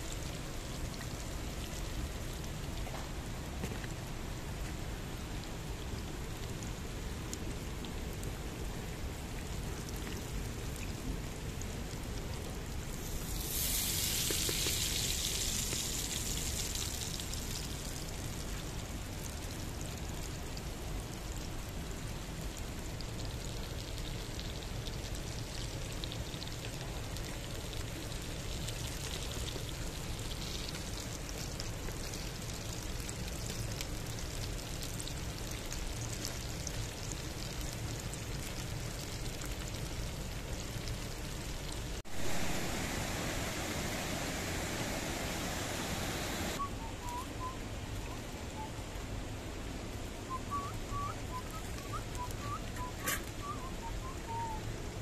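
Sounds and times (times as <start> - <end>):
food sizzling in hot oil: 13.0 - 18.0.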